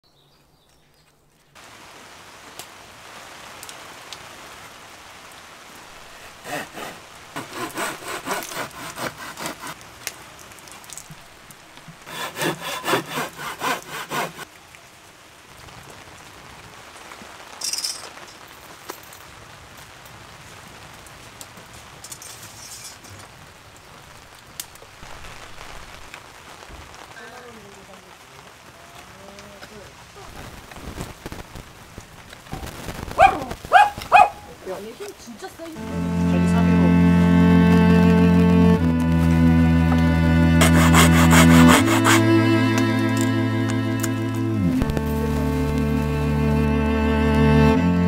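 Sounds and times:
hand saw cutting wood: 0:06.1 - 0:09.8, 0:12.0 - 0:14.5, 0:39.8 - 0:43.3.

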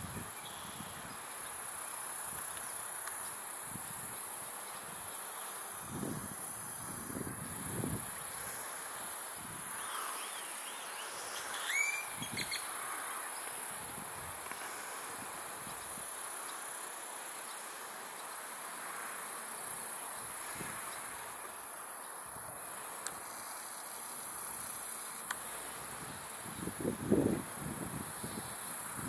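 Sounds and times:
high-pitched insect trilling: 0:00.0 - 0:29.0
bird call: 0:09.8 - 0:12.8.

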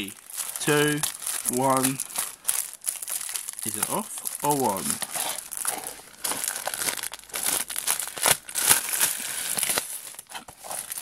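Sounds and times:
plastic wrap crinkling and tearing: 0:00.0 - 0:11.0.

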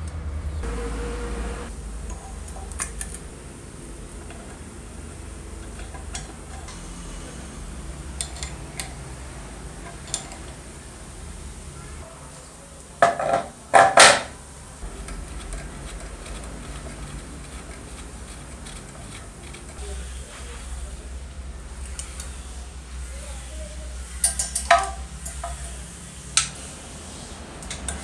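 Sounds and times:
metal rattling and scraping: 0:01.8 - 0:10.7, 0:13.2 - 0:20.7
wrench clinking on metal: 0:24.2 - 0:25.6.

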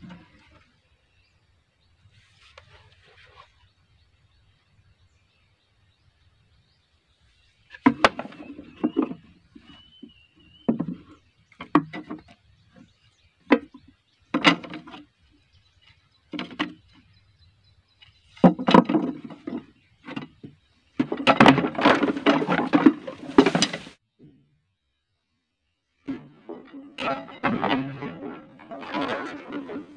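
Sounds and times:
rattling clatter: 0:18.4 - 0:24.0, 0:26.1 - 0:29.9.

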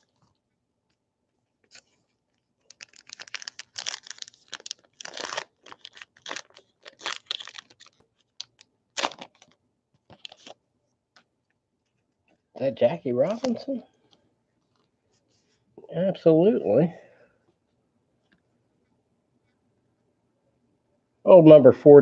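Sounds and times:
plastic wrapper tearing and crinkling: 0:01.7 - 0:10.6.

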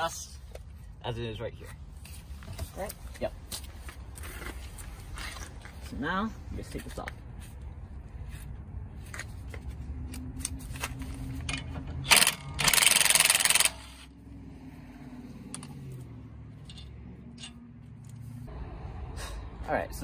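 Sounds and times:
impact wrench hammering: 0:12.0 - 0:14.0.

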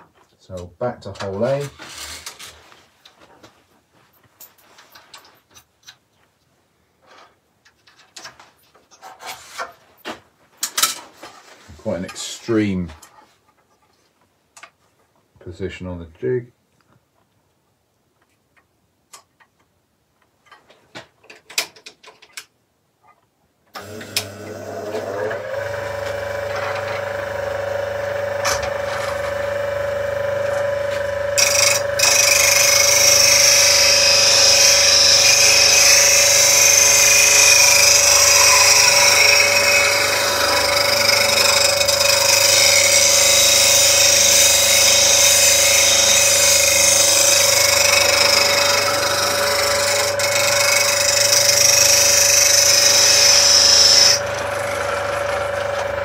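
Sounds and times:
bench grinder humming: 0:23.8 - 0:56.0.

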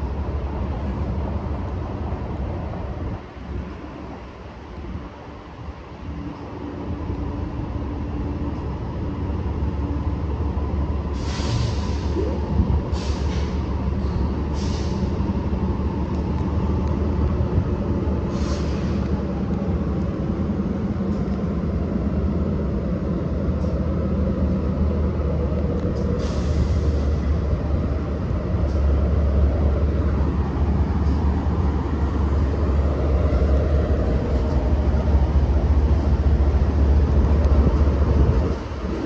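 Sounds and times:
diesel locomotives rumbling: 0:00.0 - 0:39.0
short hisses: 0:11.2 - 0:12.2, 0:14.6 - 0:15.1, 0:18.3 - 0:19.0.

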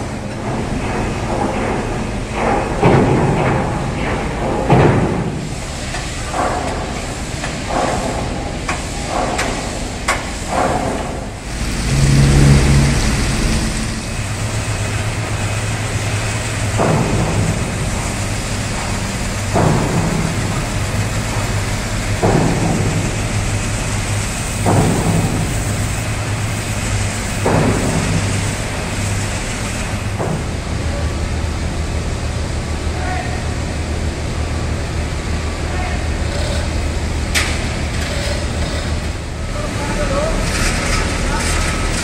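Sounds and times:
high-pressure water jet spraying: 0:05.3 - 0:31.1
machine humming: 0:11.2 - 0:39.8
sharp metallic knocks: 0:18.8 - 0:23.7, 0:24.5 - 0:26.2.

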